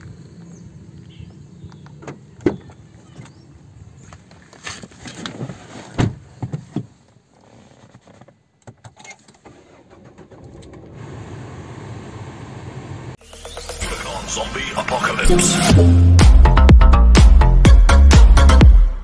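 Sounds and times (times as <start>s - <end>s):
car engine starting and idling: 9.3s - 16.8s.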